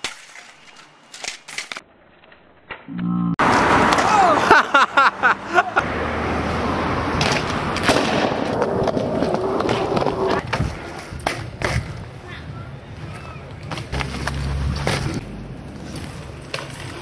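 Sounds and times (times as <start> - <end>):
bike tyres rolling on pavement: 5.8 - 17.0.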